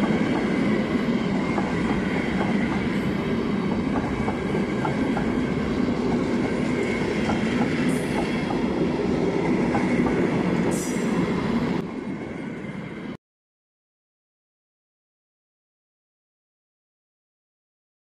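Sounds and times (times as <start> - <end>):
train coaches rolling past: 0.0 - 13.2.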